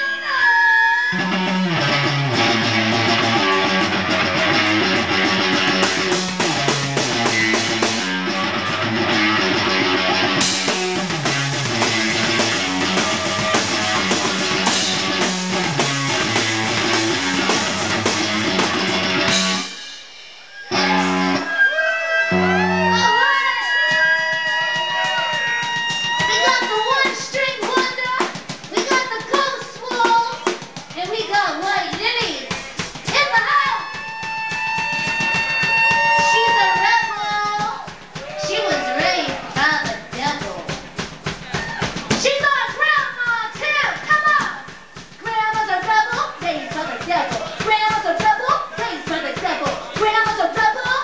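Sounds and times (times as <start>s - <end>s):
electric guitar rock riff: 1.1s - 23.2s, 34.0s - 36.9s
drum kit hits: 1.2s - 21.4s, 31.9s - 42.8s.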